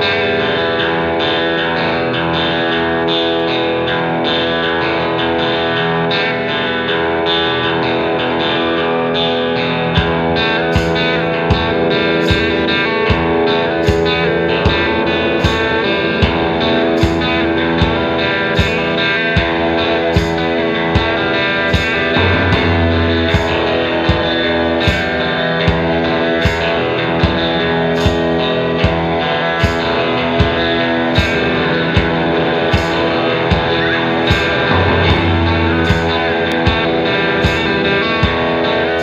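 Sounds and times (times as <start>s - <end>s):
electric guitar: 0.0s - 39.0s
steady drum beat: 10.0s - 39.0s.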